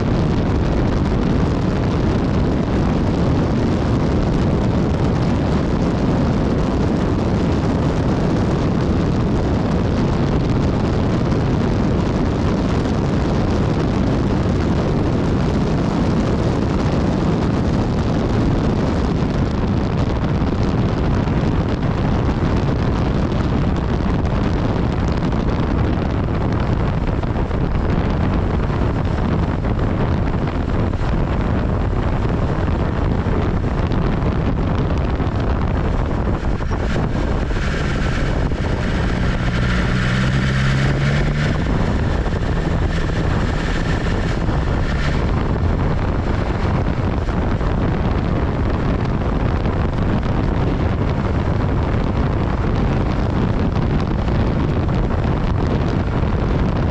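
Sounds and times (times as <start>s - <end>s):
motorcycle engine running: 0.0s - 54.3s
wind rushing over microphone: 0.0s - 56.9s
rising engine note: 35.8s - 47.3s.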